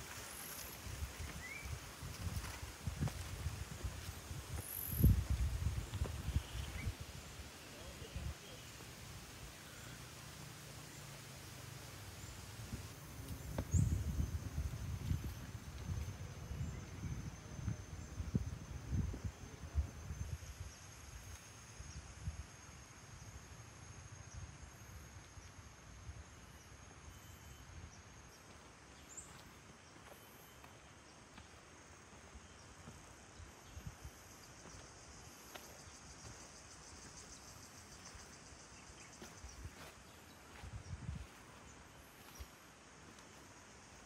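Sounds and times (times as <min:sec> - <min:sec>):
insects buzzing: 0:00.0 - 0:44.0
low rumble on microphone: 0:12.6 - 0:20.3.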